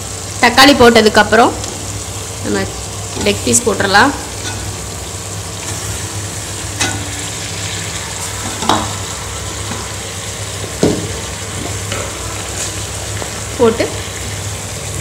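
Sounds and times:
masala sizzling in a pot: 0.0s - 15.0s
steady low hum: 0.0s - 15.0s.

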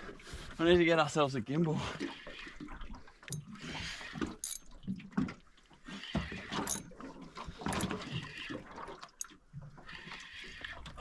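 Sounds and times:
knocks and clicks of boat and tackle: 1.9s - 11.0s.

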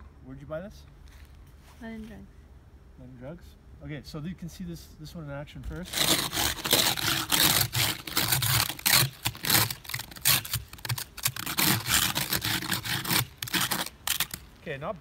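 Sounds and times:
ice scraper scraping windshield: 5.8s - 14.4s.

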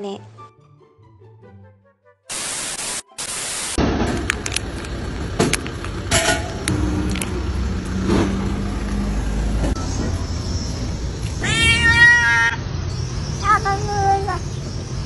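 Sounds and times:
tv static hiss: 2.3s - 3.8s
low rumble: 6.5s - 11.2s.

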